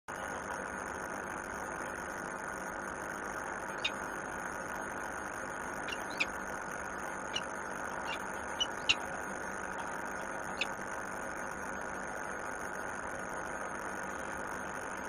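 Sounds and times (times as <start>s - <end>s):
high bird chirps: 3.7s - 4.0s, 5.8s - 6.4s, 7.3s - 9.1s
distant city traffic hum: 5.8s - 10.7s.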